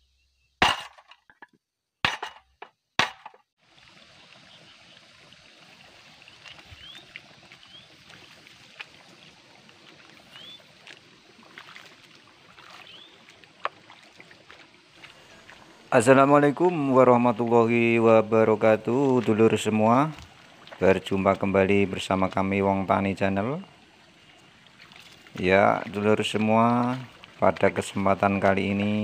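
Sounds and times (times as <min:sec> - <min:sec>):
bird chirps: 0:06.3 - 0:08.0, 0:10.2 - 0:10.7, 0:12.8 - 0:13.3.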